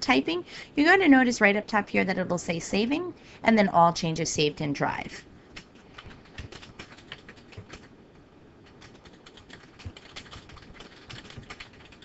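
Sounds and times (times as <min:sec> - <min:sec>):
keyboard typing clicks: 0:08.6 - 0:12.0.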